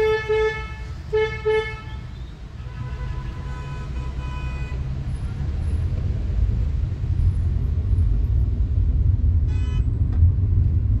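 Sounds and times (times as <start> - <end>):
car driving rumble inside cabin: 4.9 - 11.0
car horn toot: 9.5 - 9.9.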